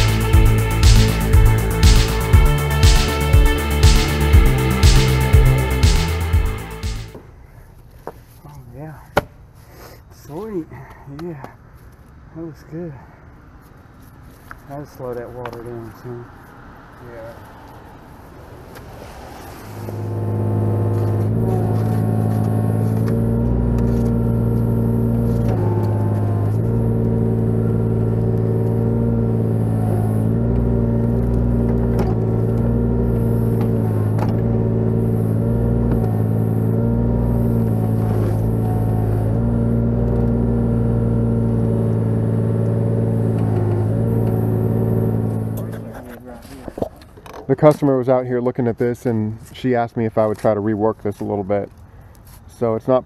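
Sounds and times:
excavator diesel engine running: 0.0 - 7.2, 19.2 - 45.9.

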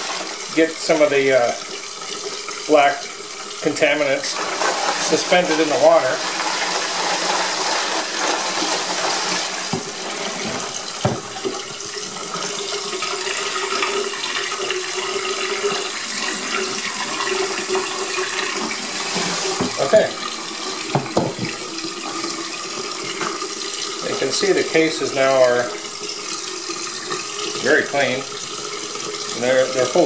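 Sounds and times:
water pouring and splashing: 0.0 - 30.0
plastic barrel knocks: 11.0 - 11.6, 20.9 - 21.6.

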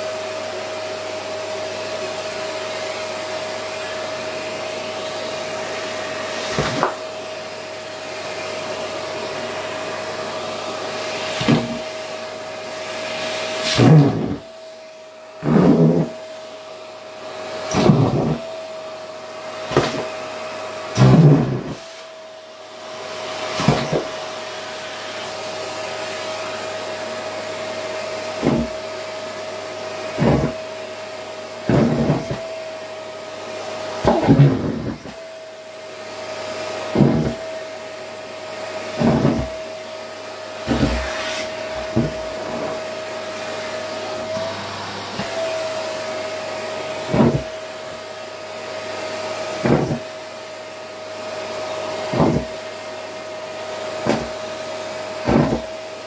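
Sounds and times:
vacuum cleaner high whine: 0.0 - 56.0
vacuum wand knocking on plate: 49.6 - 50.0.

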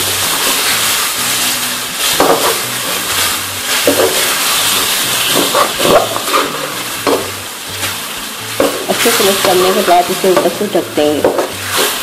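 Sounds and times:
food sizzling in hot oil: 0.0 - 12.0
spatula scraping pan: 0.2 - 7.9.

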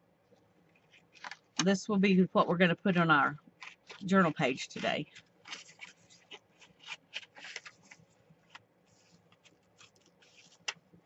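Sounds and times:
paper rustling: 0.7 - 1.6, 3.6 - 11.0.

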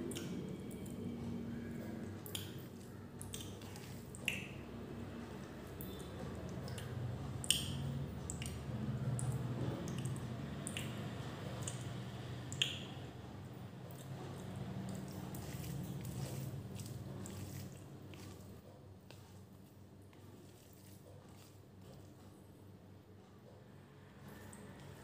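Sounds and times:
fingers squishing food: 0.0 - 13.2, 13.8 - 22.3
sharp wet clicks: 1.6 - 18.6.

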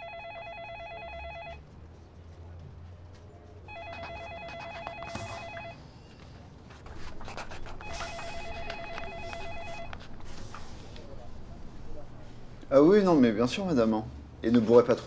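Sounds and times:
electronic telephone ringing: 0.0 - 1.6, 3.7 - 5.8, 7.8 - 10.0.

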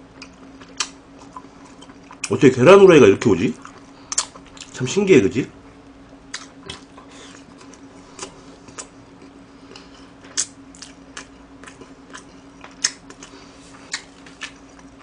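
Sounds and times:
faint steady hum: 0.0 - 15.0
wet chewing mouth clicks: 6.3 - 14.9.

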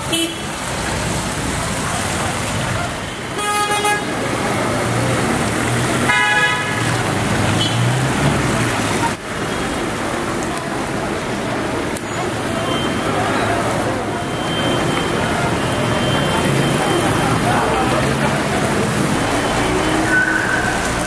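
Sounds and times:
traffic on wet road: 0.0 - 21.0
vehicle horn tooting: 6.1 - 6.8.

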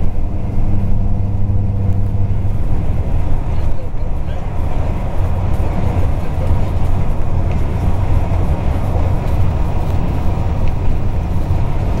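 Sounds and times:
vehicle engine rumble: 0.0 - 12.0
tyres hissing on pavement: 3.6 - 12.0.

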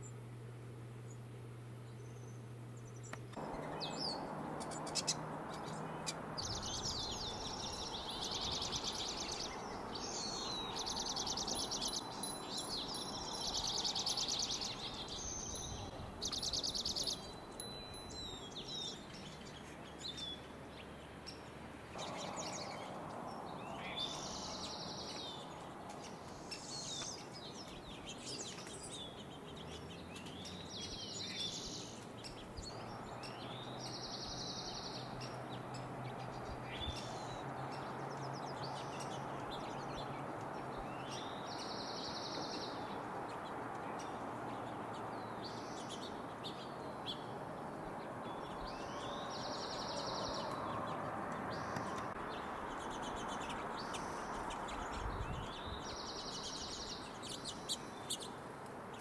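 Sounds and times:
low background noise: 0.0 - 59.0
songbird trilling: 1.9 - 20.4.

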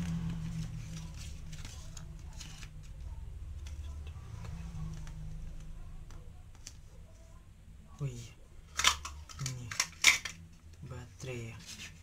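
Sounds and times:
paper rustling: 0.0 - 3.8
low steady hum: 0.0 - 12.0.

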